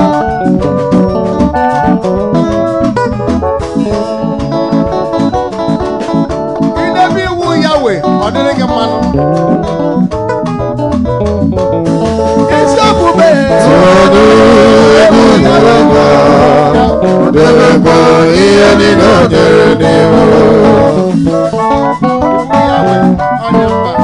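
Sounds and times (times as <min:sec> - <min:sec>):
live band with guitar and organ: 0:00.0 - 0:24.0
man singing into a microphone: 0:12.5 - 0:21.2, 0:22.5 - 0:24.0.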